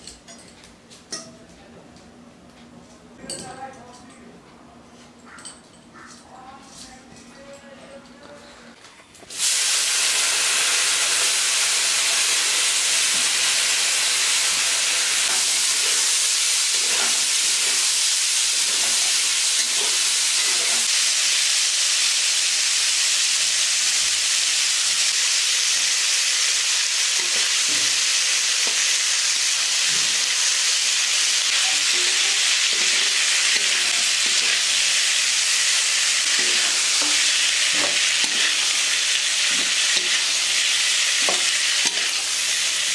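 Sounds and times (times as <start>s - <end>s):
food sizzling in oil: 9.3s - 42.9s.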